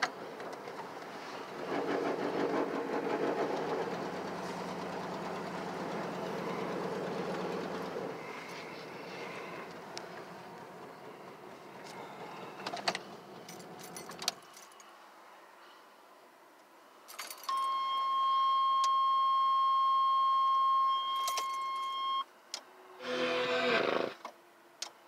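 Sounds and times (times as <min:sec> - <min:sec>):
car cabin running noise: 0:00.0 - 0:13.4
keys clicking and jingling: 0:13.5 - 0:14.9, 0:17.1 - 0:17.7, 0:21.2 - 0:21.9.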